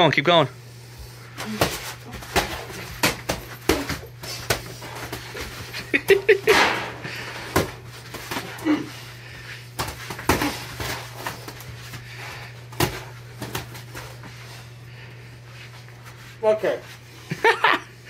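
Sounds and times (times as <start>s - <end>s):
boxing gloves thudding: 1.4s - 8.9s, 9.7s - 12.0s, 12.7s - 14.2s
feet shuffling on foam mats: 7.1s - 17.6s.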